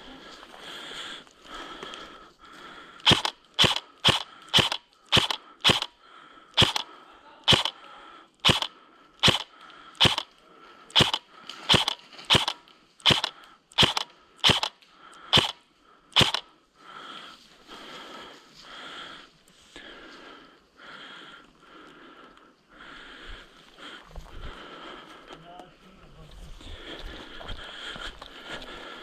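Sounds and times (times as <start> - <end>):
airsoft gun shots: 3.0 - 5.9, 6.6 - 6.8, 7.5 - 7.7, 8.4 - 10.2, 10.9 - 14.7, 15.3 - 15.5, 16.2 - 16.4.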